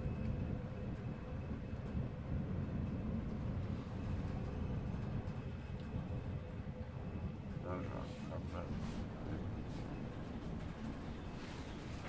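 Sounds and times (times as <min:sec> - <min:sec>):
faint machinery hum: 0:00.0 - 0:12.0
ship engine rumble: 0:00.0 - 0:12.0.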